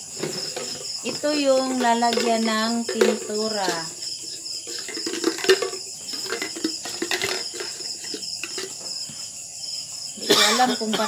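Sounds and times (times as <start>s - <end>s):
crickets chirping: 0.0s - 11.0s
plastic container clicks and knocks: 0.2s - 3.9s, 4.7s - 8.8s.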